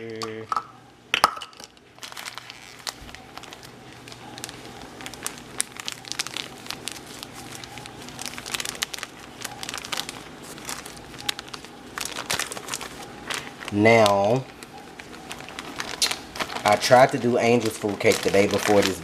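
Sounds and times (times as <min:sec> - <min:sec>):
faint low hum: 0:00.0 - 0:19.0
sugar bag crinkling: 0:01.3 - 0:19.0.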